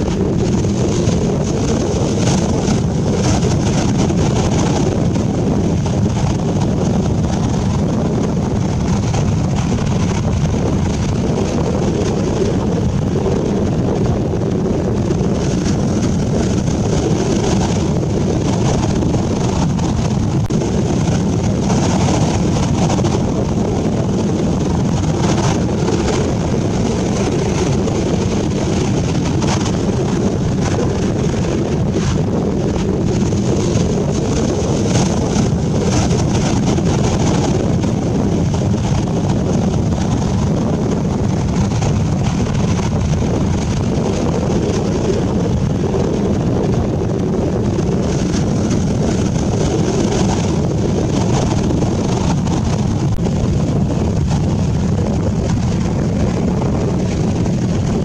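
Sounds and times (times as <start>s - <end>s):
surf washing up a beach: 0.0s - 58.0s
wind buffeting the microphone: 0.0s - 58.0s.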